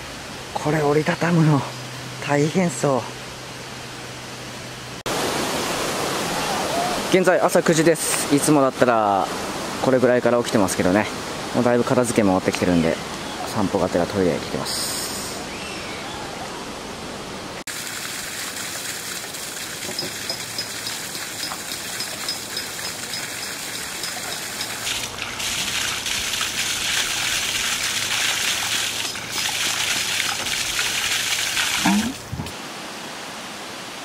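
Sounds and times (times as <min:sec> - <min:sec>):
water pouring onto rocks: 0:17.7 - 0:32.3.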